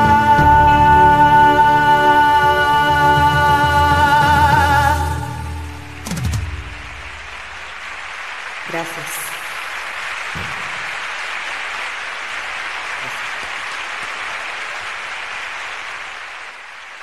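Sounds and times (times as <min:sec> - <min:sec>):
audience applauding: 0:04.8 - 0:17.0.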